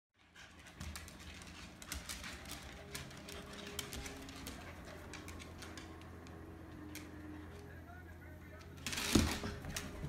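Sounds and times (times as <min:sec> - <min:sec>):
dog claws clicking on wood floor: 0:00.6 - 0:06.2.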